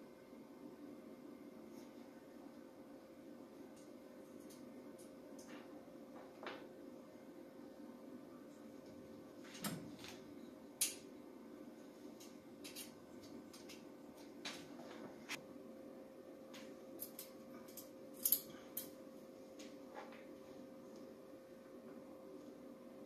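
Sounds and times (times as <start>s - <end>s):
faint steady hum: 0.0s - 23.0s
metallic clicks of tools handled: 17.0s - 18.9s.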